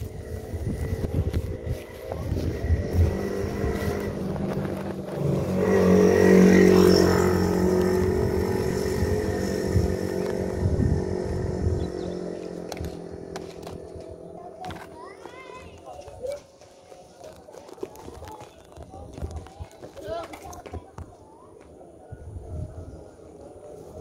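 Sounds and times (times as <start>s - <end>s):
vehicle engine passing by: 0.0s - 14.6s.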